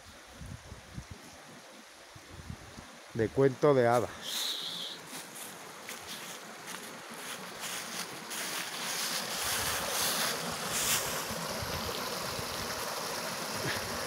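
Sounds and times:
stream rushing over rocks: 0.0s - 14.0s.

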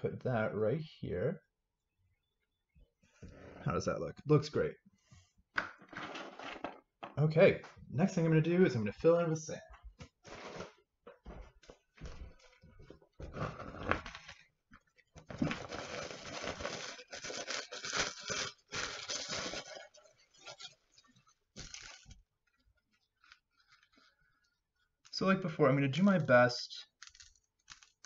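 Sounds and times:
plastic bag rustling: 15.3s - 20.9s, 21.5s - 22.2s.

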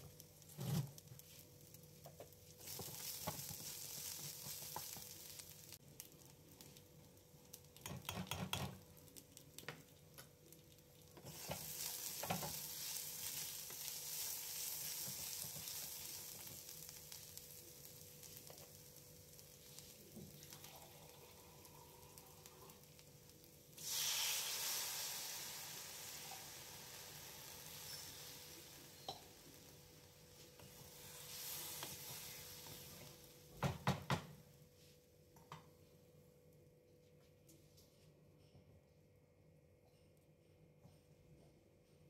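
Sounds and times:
loud sizzle of water in oil: 0.0s - 34.2s
food frying quietly in pan: 0.0s - 35.6s
spatula stirring: 2.6s - 5.8s.

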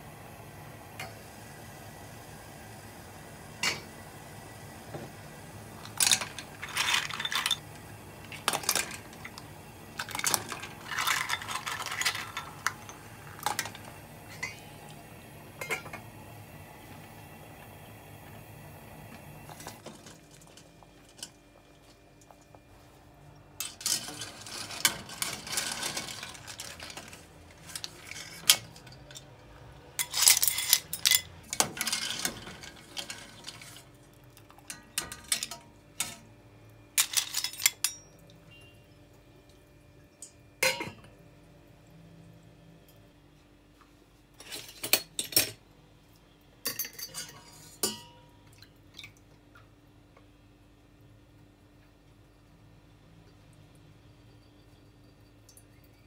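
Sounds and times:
clam shells clinking in metal pot: 5.8s - 9.4s, 10.0s - 14.6s, 23.6s - 29.3s, 30.0s - 33.7s, 34.6s - 36.2s, 37.0s - 38.2s
metal spoon stirring clams: 8.2s - 9.4s, 10.0s - 13.8s, 23.6s - 29.3s, 30.0s - 33.9s.

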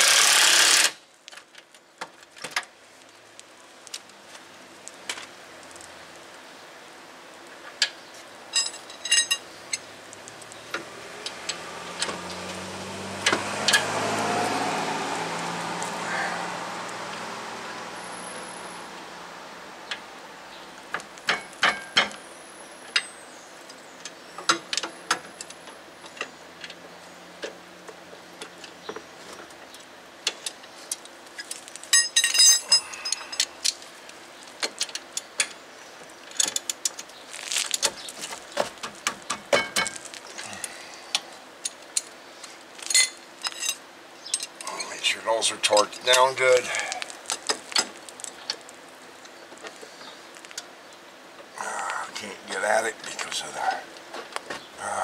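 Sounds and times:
vehicle passing: 9.9s - 20.9s.

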